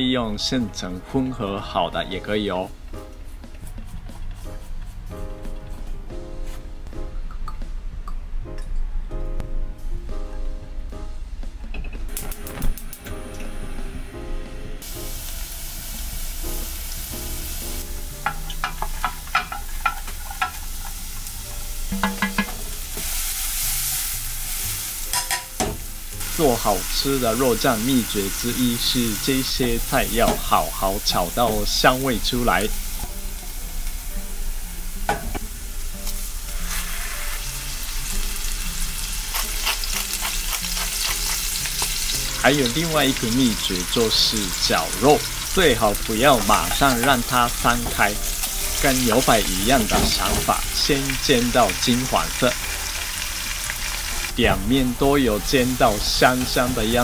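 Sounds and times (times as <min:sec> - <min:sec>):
light background music: 0:00.0 - 0:57.0
garlic sizzling in hot oil: 0:14.8 - 0:57.0.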